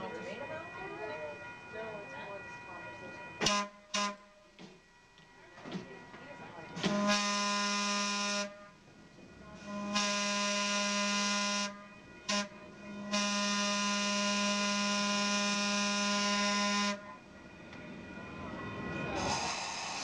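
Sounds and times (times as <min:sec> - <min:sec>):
streetcar horn blasts: 0:03.4 - 0:04.4, 0:06.8 - 0:08.8, 0:09.6 - 0:17.3.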